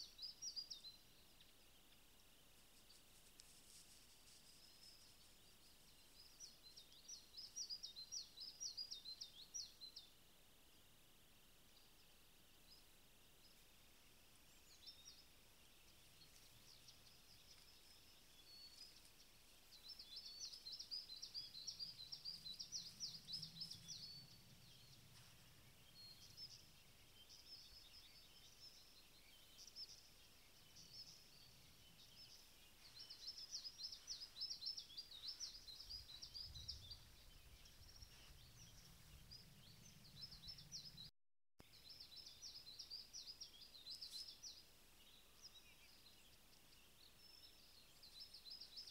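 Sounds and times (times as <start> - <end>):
songbirds trilling: 11.7 - 41.1.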